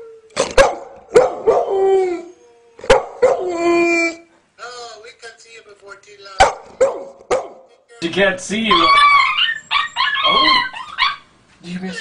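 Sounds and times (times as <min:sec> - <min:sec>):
dog barking: 0:00.5 - 0:01.8, 0:02.8 - 0:03.5, 0:06.4 - 0:07.7
dog howling: 0:01.4 - 0:04.3, 0:08.6 - 0:11.3.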